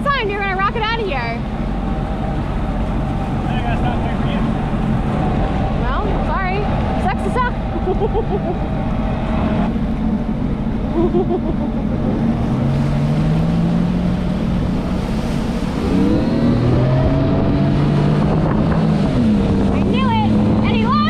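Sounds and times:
jet ski engine: 0.0 - 21.0
water rushing: 0.0 - 21.0
wind: 0.0 - 21.0.

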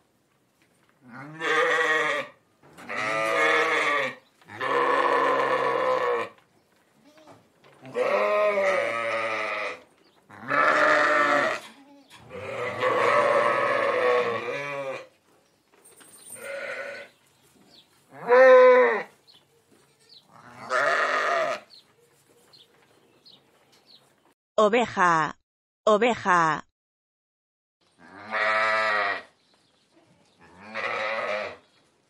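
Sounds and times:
sheep bleating: 1.0 - 6.4, 7.0 - 15.1, 16.4 - 17.1, 18.1 - 21.7, 28.0 - 29.3, 30.4 - 31.6.

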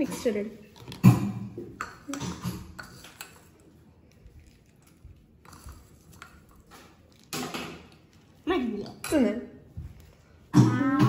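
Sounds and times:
spoon scraping a bowl: 0.0 - 3.7.

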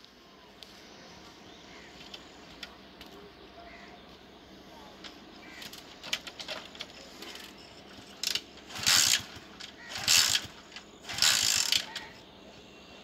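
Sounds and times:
engine turning over: 5.6 - 12.2.

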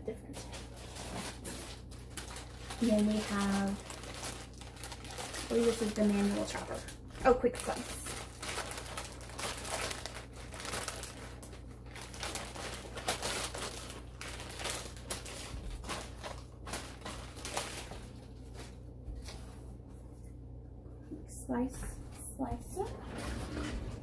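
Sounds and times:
packaging crinkling: 0.3 - 19.5.

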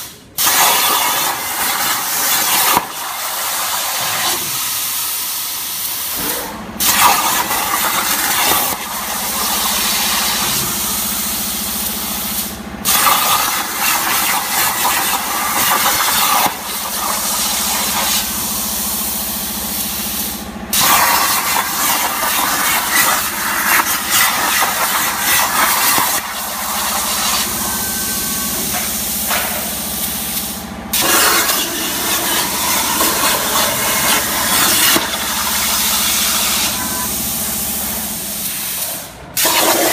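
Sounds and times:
plasma cutter hissing: 0.0 - 39.9
steady low hum: 21.4 - 39.4.

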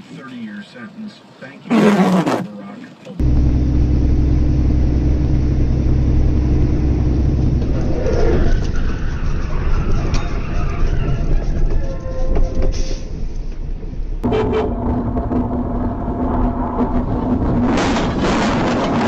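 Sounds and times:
truck engine hum: 3.2 - 9.5
tyre and wind rumble: 4.6 - 19.0.

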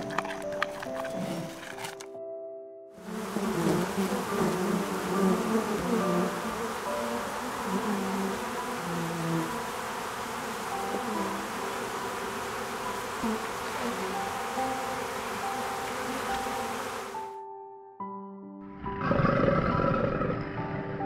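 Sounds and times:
honeybees buzzing: 0.0 - 2.0, 3.0 - 17.4.

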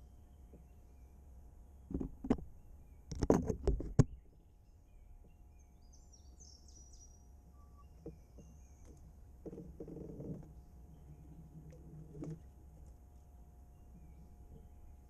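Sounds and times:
small bird chirping: 4.1 - 9.1.

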